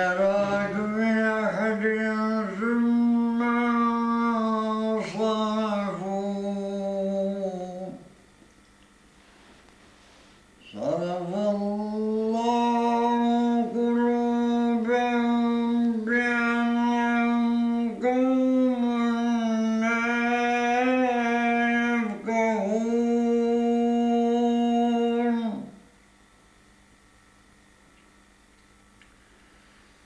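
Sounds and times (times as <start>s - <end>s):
man chanting melodic recitation: 0.0s - 8.1s, 10.6s - 25.8s.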